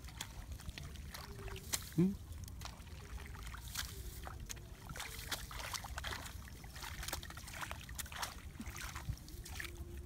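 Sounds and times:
hands splashing in muddy water: 0.0 - 10.0.

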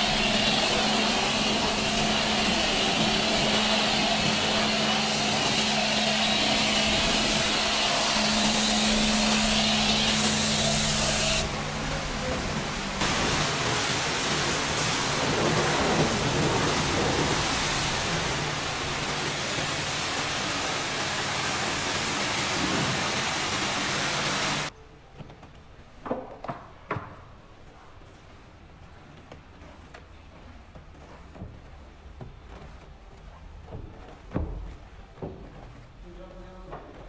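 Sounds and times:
brush scrubbing metal walls: 0.0 - 11.5
pressure washer hissing: 0.0 - 11.6, 13.0 - 24.7.

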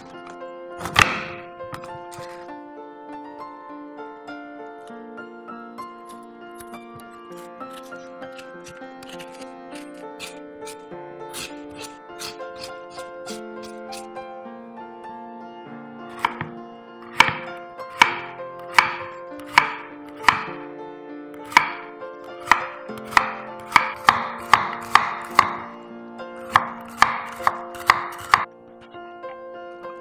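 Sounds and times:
knife slicing on wooden board: 0.0 - 2.5, 6.1 - 14.1, 16.1 - 16.5.

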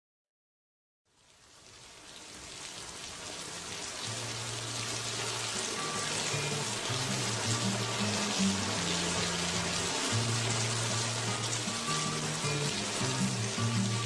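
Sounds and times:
rain-like hiss: 1.1 - 14.0
low held music notes: 3.6 - 14.0.

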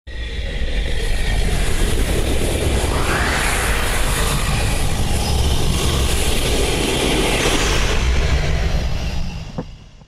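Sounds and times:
loud rushing noise: 2.6 - 8.5.

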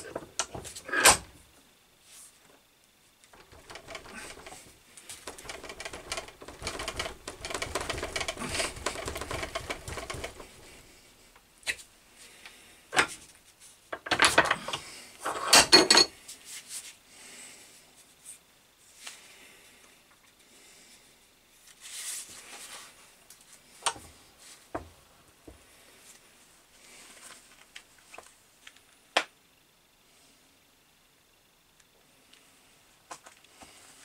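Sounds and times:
rapid scraping and rustling: 3.3 - 11.1
metal clanks and knocks: 3.4 - 10.8.

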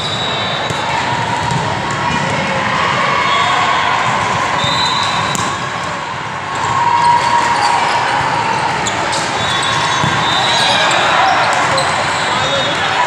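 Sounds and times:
murmur of voices in a hall: 0.0 - 13.0
volleyballs struck and bouncing: 0.7 - 2.4, 4.0 - 6.8, 9.1 - 10.4.

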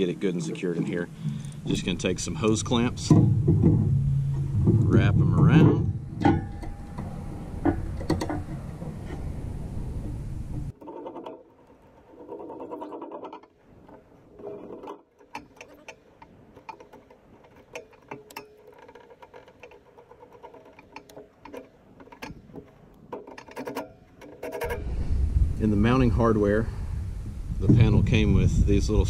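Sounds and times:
hose clamp ratcheting clatter: 0.0 - 9.3, 10.5 - 24.9
loud steady rushing noise: 24.6 - 28.2.

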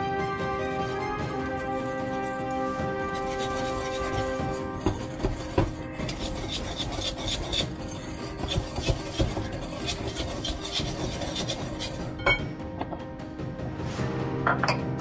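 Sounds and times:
whisk scraping in glass bowl: 0.5 - 12.4.

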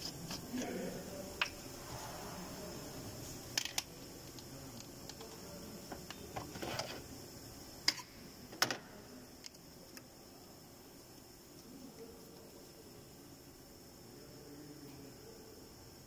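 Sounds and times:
faint workshop background: 0.0 - 16.0.

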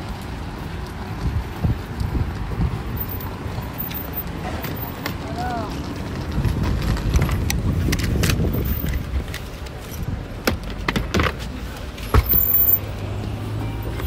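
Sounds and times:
road traffic rumbling: 0.0 - 14.0
clicks and knocks of handled items: 1.9 - 12.8.

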